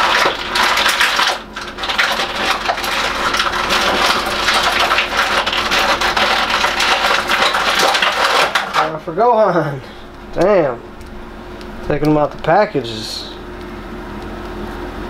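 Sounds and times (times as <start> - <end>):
plastic packaging crackling: 0.0 - 9.1.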